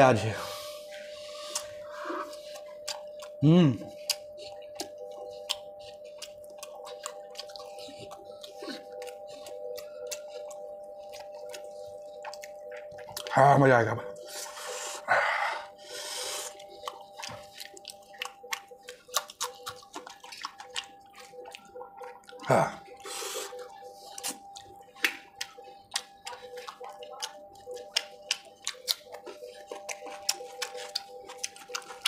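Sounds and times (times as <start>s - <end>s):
wet mouth clicks and lip smacks: 1.5s - 3.4s, 4.0s - 13.3s, 16.4s - 32.0s
man humming: 3.4s - 3.9s, 22.4s - 22.8s.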